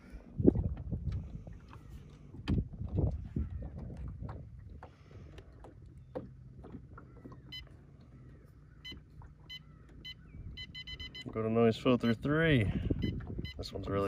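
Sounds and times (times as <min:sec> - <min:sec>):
trolling motor humming: 0:03.4 - 0:14.0
short electronic beeps: 0:07.5 - 0:07.7, 0:08.8 - 0:13.8.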